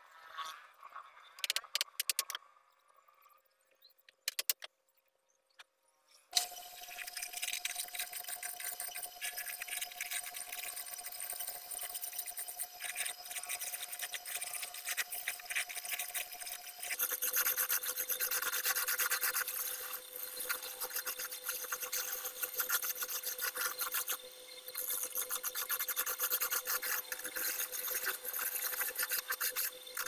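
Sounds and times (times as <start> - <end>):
wood rasping scrape on lathe: 7.0 - 30.0.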